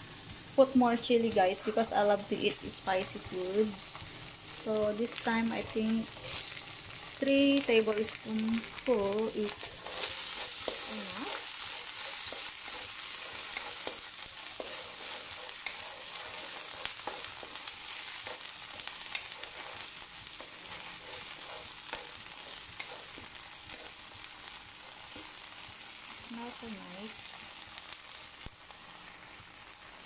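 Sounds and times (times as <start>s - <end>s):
food sizzling in hot oil: 0.0s - 30.0s
spatula scraping and tapping pan: 9.4s - 24.1s.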